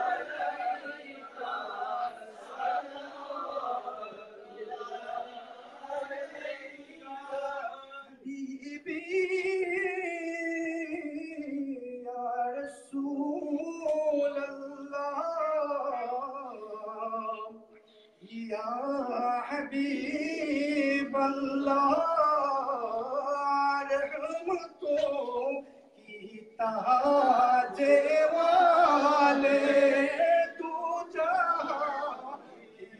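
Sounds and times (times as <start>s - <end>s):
man singing unaccompanied: 5.9s - 32.9s.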